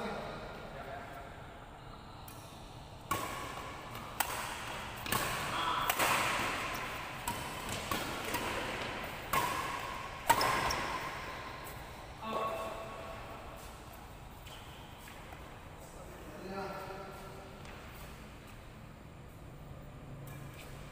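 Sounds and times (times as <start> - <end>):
rackets striking shuttlecock: 2.3 - 12.0.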